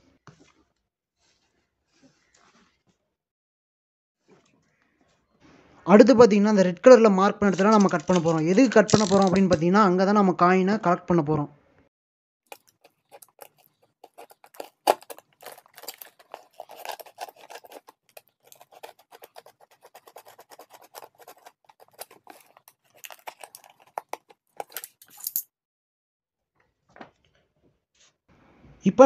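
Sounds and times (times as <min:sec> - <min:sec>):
utility knife cutting cardboard: 0:12.5 - 0:25.0.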